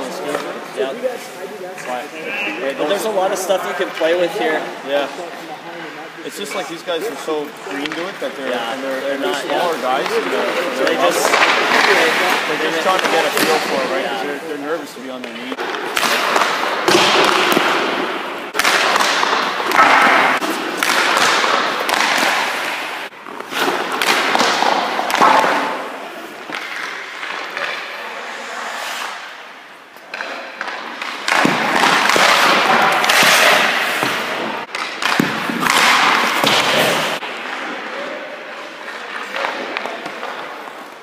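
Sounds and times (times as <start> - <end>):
sticks striking pucks: 0.2 - 0.7, 6.3 - 14.4, 15.2 - 28.1, 28.7 - 41.0
pucks thudding off pads: 6.3 - 28.1, 28.7 - 41.0
skate blades scraping ice: 15.7 - 37.9.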